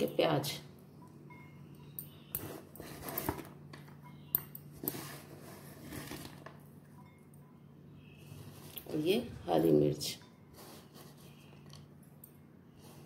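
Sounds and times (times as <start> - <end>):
soft rustles of food: 8.2 - 9.4.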